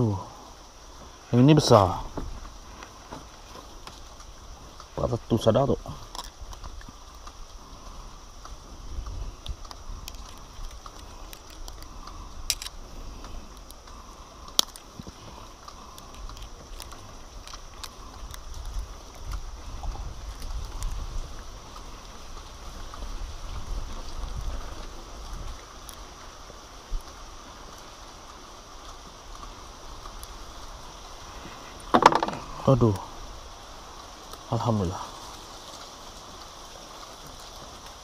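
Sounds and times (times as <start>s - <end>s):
pliers clicking: 12.5s - 12.7s
low rumble on microphone: 15.0s - 27.3s.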